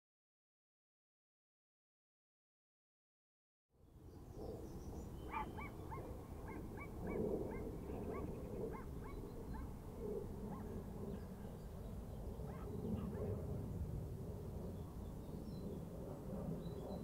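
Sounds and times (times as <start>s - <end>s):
dog yapping: 5.3s - 9.2s.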